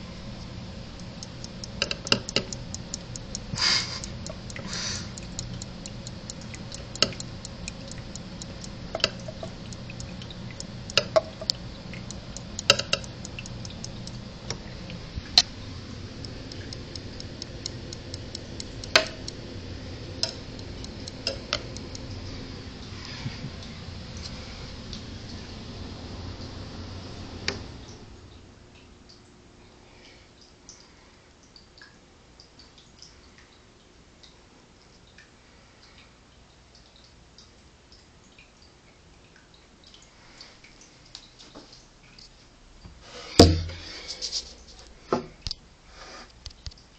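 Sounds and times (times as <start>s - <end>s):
faint fast ticking: 0.0s - 22.9s
metal tongs clicking and tapping: 1.0s - 14.2s, 16.2s - 19.4s, 20.2s - 22.1s.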